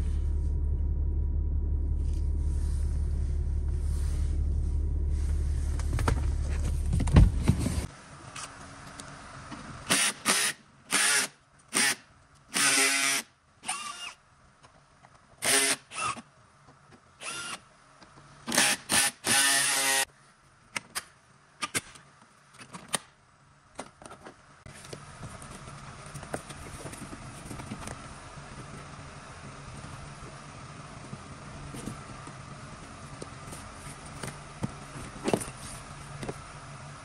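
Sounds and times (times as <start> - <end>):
steady low hum: 0.0 - 9.5
cordless drill motor whining: 12.6 - 14.2.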